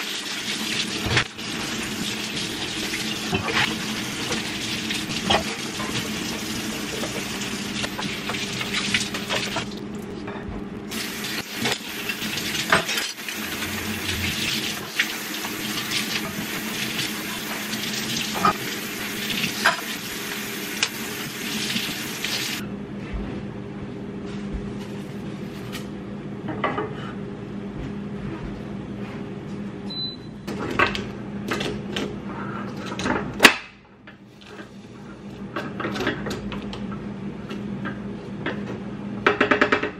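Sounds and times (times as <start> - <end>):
saucepan sizzling: 0.0 - 9.9, 10.9 - 22.6.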